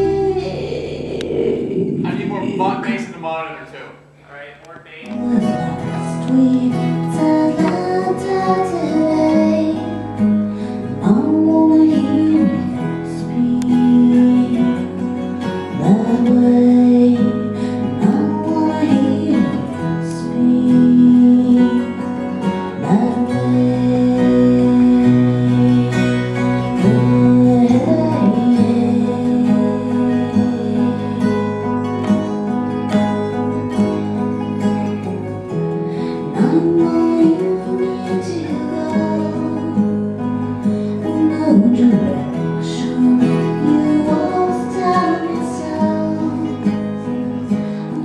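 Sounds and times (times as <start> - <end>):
woman singing: 0.0 - 2.5, 5.1 - 32.3, 36.0 - 48.0
deep bass notes: 0.0 - 6.7
strummed acoustic guitar: 0.0 - 48.0.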